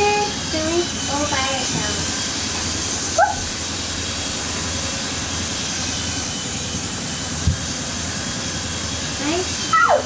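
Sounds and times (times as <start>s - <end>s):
small propellers whirring: 0.0s - 10.0s.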